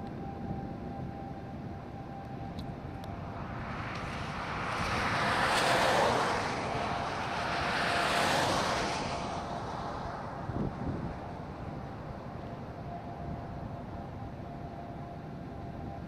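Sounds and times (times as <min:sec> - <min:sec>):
vehicle passing by: 0:02.8 - 0:13.0.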